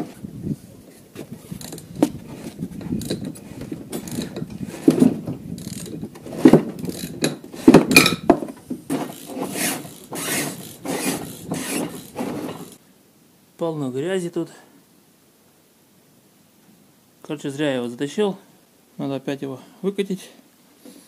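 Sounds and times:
snowmobile track clanking on wood: 1.2 - 12.8.

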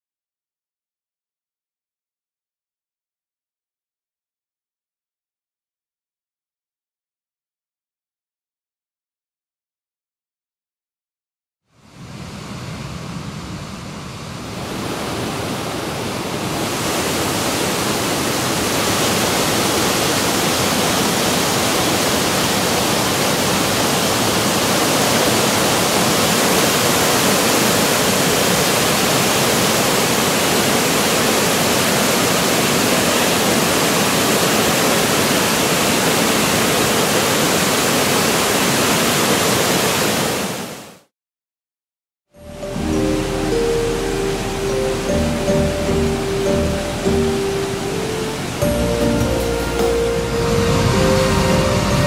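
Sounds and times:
waterfall rushing: 14.3 - 41.1, 42.4 - 52.0.

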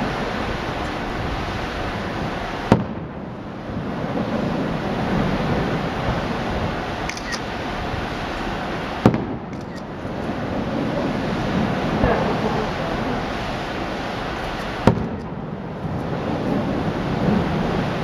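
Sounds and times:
steady rushing noise: 0.0 - 18.0
firework shells bursting: 14.5 - 15.4.

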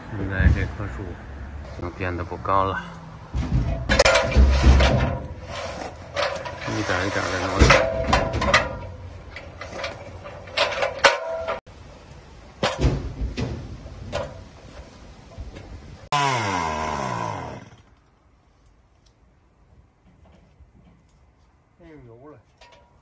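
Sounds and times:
metal ladder clanking: 3.3 - 11.6, 12.6 - 15.6, 22.5 - 23.0
chainsaw starting and winding down: 16.1 - 18.0.

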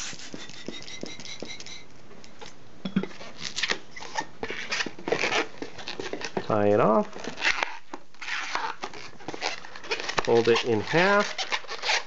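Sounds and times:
latex balloon squeaks and rubs: 0.0 - 1.4, 3.2 - 12.0
hand pump air whistle: 0.0 - 1.8.

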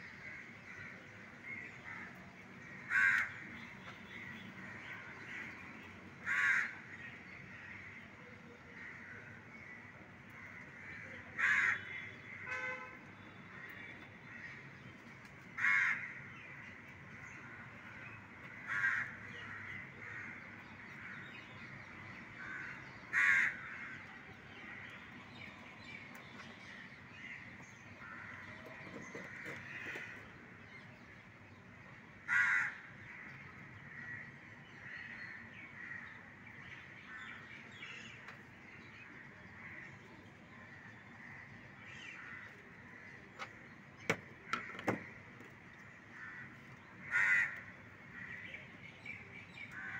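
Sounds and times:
steady low background noise: 0.0 - 49.9
crows cawing: 0.2 - 3.6, 6.2 - 8.1, 8.7 - 12.8, 15.5 - 24.9, 28.0 - 30.5, 32.2 - 36.3, 41.2 - 45.4, 46.0 - 48.5, 49.7 - 49.9.

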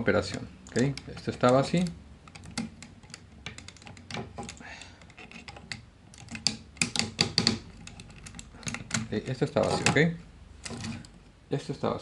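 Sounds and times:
plastic toy parts clicking: 0.2 - 11.2.

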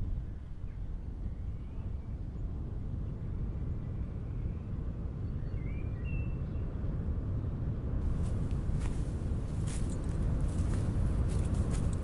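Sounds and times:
low rumbling background: 0.0 - 12.0
faint bird chirp: 0.2 - 6.7.

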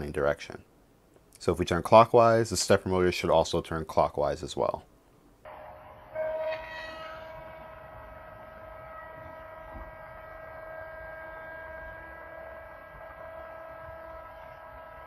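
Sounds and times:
stepper motor whine: 5.5 - 15.0.

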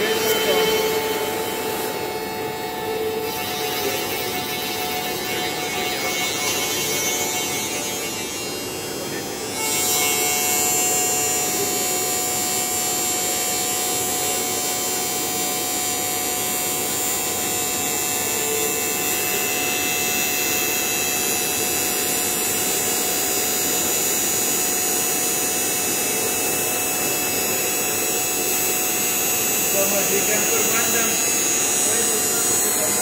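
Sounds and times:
cutter hissing through wood: 0.0 - 11.2
milling spindle whine: 0.0 - 11.8, 25.7 - 33.0.

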